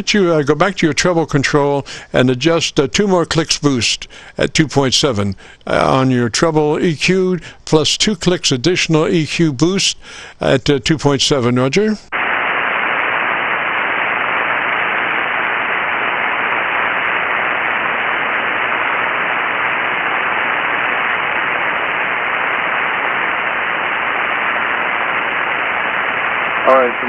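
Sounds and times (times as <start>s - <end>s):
radio static hiss: 0.0s - 27.0s.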